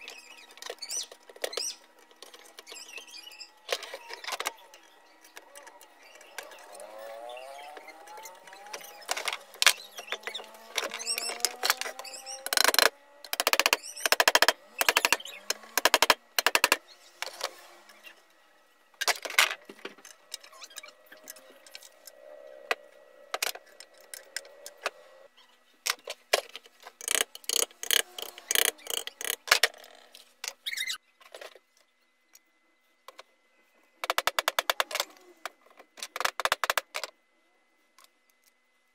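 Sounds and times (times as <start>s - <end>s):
plastic and metal parts clattering: 0.0s - 6.8s, 7.7s - 17.6s, 19.0s - 22.0s, 25.8s - 31.8s.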